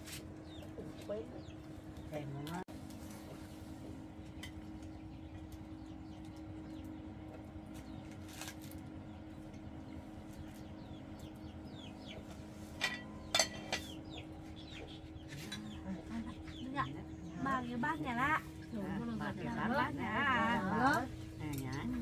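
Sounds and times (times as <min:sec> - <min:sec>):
low hum: 0:00.3 - 0:22.0
chickens clucking and chirping: 0:09.1 - 0:22.0.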